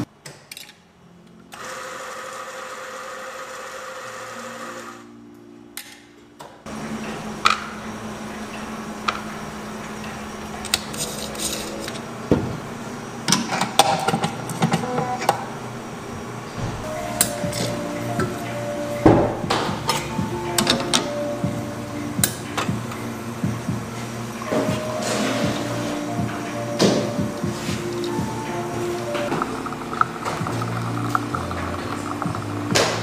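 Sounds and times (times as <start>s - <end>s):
coffee grinder motor: 1.6s - 5.0s
steady hum: 6.7s - 33.0s.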